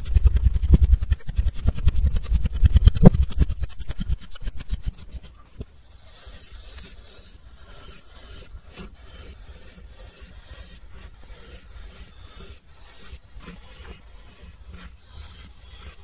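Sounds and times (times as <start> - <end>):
tool crunching and scraping sand: 0.0 - 16.0.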